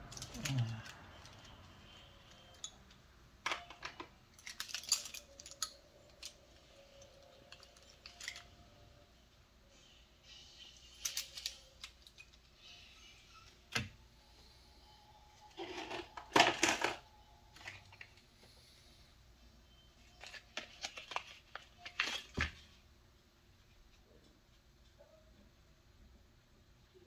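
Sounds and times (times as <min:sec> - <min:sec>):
small clicks and rattles: 0:02.2 - 0:08.5.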